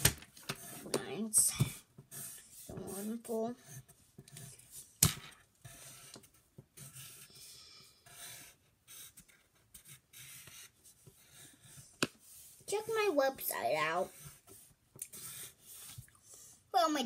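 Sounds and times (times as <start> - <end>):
crayon scratching on paper: 0.4 - 5.0, 5.6 - 16.0.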